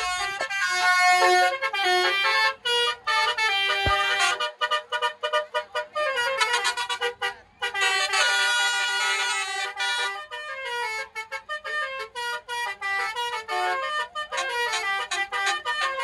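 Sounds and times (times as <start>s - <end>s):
musical air horns playing tune: 0.0s - 16.0s.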